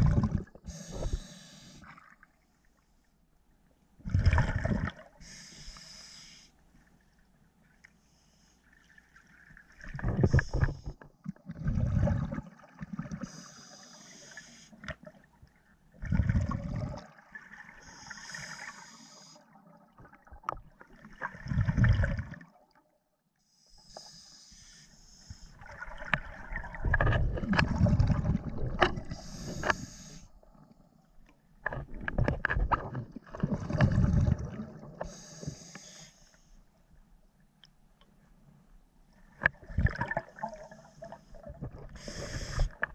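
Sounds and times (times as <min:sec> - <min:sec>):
exhaled bubbles rumbling underwater: 0:00.0 - 0:02.3, 0:04.0 - 0:05.4, 0:09.5 - 0:13.3, 0:15.0 - 0:18.7, 0:19.5 - 0:22.8, 0:25.6 - 0:35.2, 0:39.5 - 0:42.9
regulator hissing inhale: 0:00.7 - 0:01.9, 0:05.2 - 0:06.6, 0:13.2 - 0:14.8, 0:17.8 - 0:19.5, 0:23.5 - 0:25.6, 0:29.1 - 0:30.3, 0:35.0 - 0:36.6, 0:40.7 - 0:42.9.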